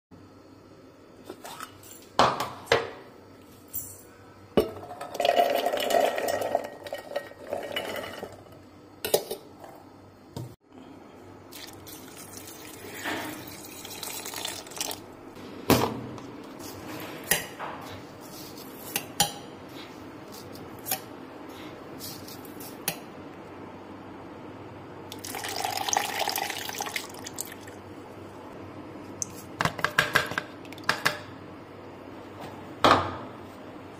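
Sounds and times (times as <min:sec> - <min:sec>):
liquid pouring: 0:05.0 - 0:08.4, 0:11.5 - 0:15.1, 0:25.1 - 0:27.8.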